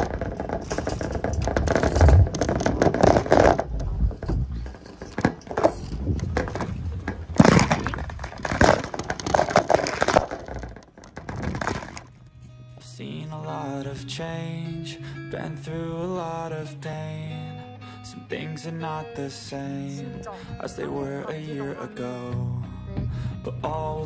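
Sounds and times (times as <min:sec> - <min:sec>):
bicycle rattling over bumps: 0:00.0 - 0:12.7
bicycle tyre rumble: 0:00.0 - 0:12.7.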